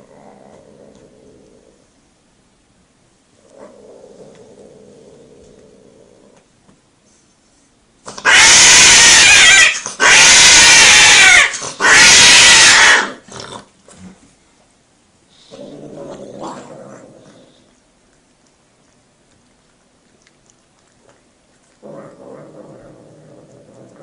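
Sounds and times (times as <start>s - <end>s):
low growling yowl: 0.0s - 1.8s, 3.4s - 6.4s, 8.1s - 14.2s, 15.5s - 17.7s, 21.8s - 24.0s
cats yowling: 8.2s - 13.2s.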